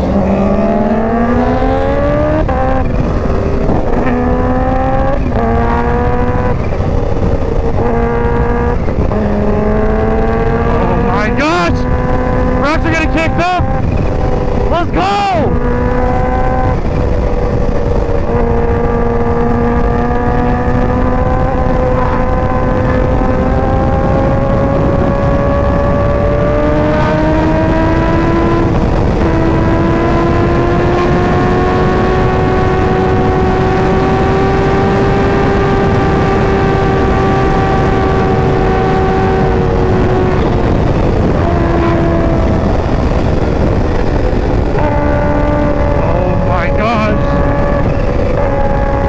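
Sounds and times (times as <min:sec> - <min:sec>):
motorcycle engine at speed: 0:00.0 - 0:49.0
wind rumble: 0:00.0 - 0:49.0.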